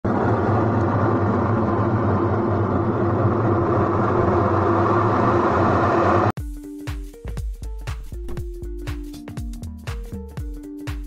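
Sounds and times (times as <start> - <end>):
washing machine humming: 0.0 - 6.4.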